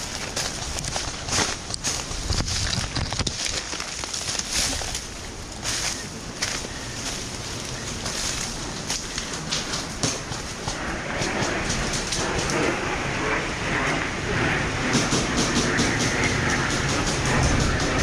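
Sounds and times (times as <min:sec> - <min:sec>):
footsteps in dry undergrowth: 0:00.0 - 0:12.4
crackling leaves and twigs: 0:00.0 - 0:14.6.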